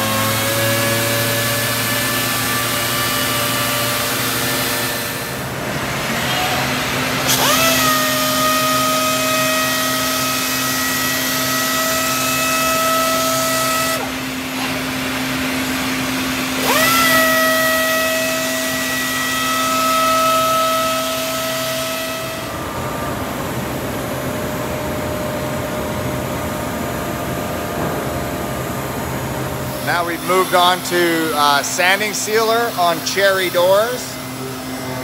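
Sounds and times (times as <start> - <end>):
orbital sander whining: 0.0 - 24.8, 29.1 - 35.0
low machine hum: 0.0 - 35.0.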